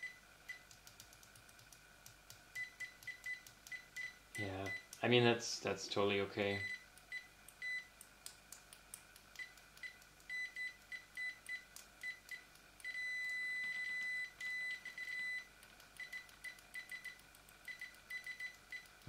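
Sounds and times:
probe tips tapping: 0:00.5 - 0:05.1
multimeter high beeps: 0:02.6 - 0:04.9, 0:06.6 - 0:07.9, 0:09.4 - 0:18.9.

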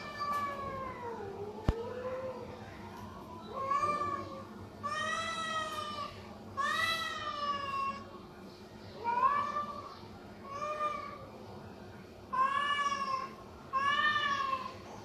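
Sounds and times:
cats meowing: 0:00.0 - 0:02.4, 0:03.5 - 0:08.1, 0:09.0 - 0:11.3, 0:12.3 - 0:14.9.

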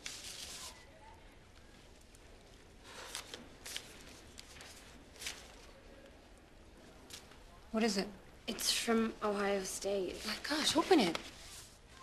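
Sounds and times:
paper envelopes rustling: 0:00.0 - 0:06.2.

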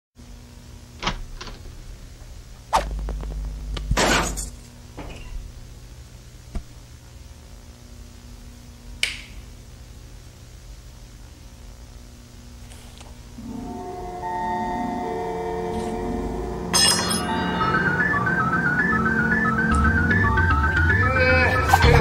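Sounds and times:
low steady hum: 0:00.2 - 0:22.0
cartoon hit with low rumble: 0:01.0 - 0:04.5
loud whoosh: 0:01.7 - 0:04.0
sharp click: 0:09.0 - 0:09.4.

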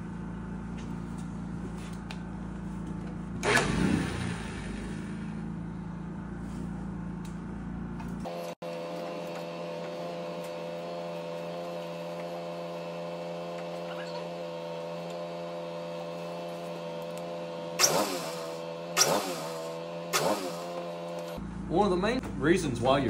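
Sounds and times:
steady hum with tones: 0:00.0 - 0:23.0
planer motor starting and winding down: 0:03.4 - 0:05.4, 0:08.3 - 0:21.4.

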